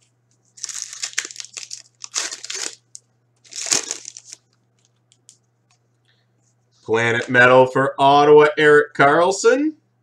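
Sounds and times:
foil wrapper crinkling: 0.5 - 5.4.

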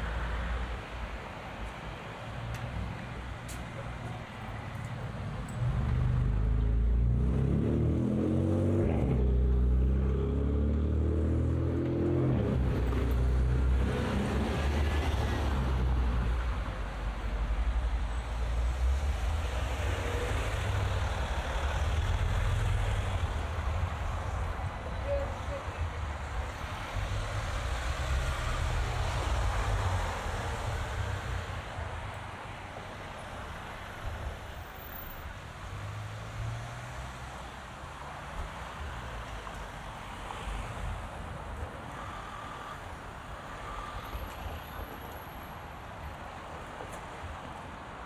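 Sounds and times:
road traffic noise: 0.0 - 48.0
car engine passing close: 5.6 - 15.9.

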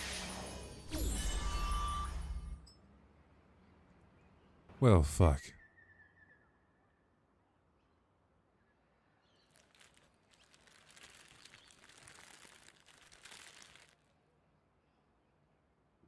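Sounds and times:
faint crackling rustling: 9.4 - 14.1.

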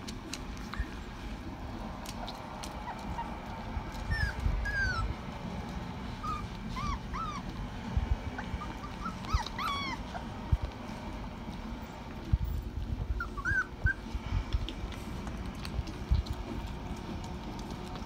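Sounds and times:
soft bumps of puppies jostling: 0.0 - 18.0
puppies whimpering: 0.5 - 1.4, 2.6 - 5.2, 6.1 - 7.6, 8.3 - 10.5, 12.4 - 14.2.

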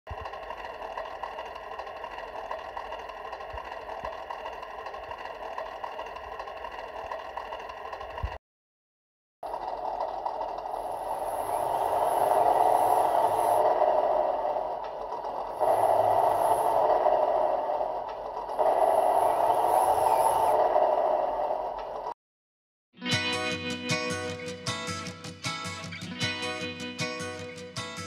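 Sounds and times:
simulated engine sound revving: 9.4 - 22.2.

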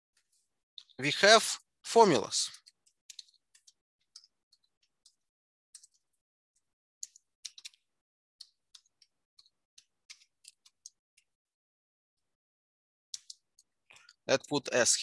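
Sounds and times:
keyboard keys clicking: 7.0 - 7.8.

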